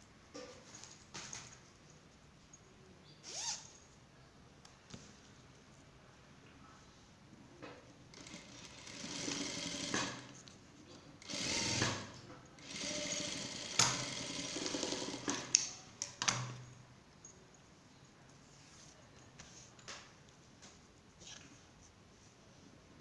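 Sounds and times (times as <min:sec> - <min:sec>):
sewing machine stitching: 0:08.1 - 0:10.4, 0:11.2 - 0:15.6.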